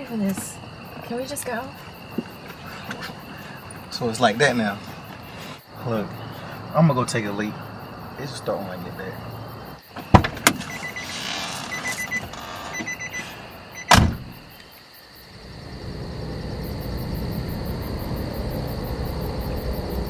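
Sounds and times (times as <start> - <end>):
car door slamming: 10.0 - 14.6
quick electronic beeps: 12.8 - 13.2
car door latch click: 13.8 - 14.4
low rumble: 15.4 - 20.0.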